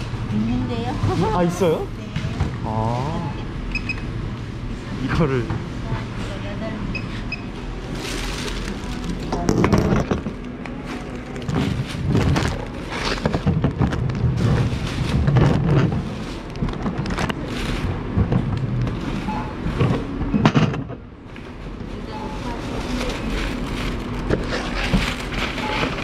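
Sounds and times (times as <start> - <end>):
plastic bag crinkling: 7.8 - 17.9, 22.7 - 26.0.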